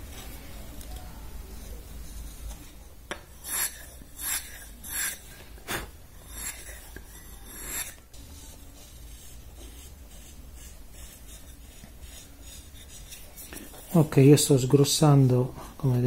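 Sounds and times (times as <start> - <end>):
blade scraping wood: 2.0 - 14.2.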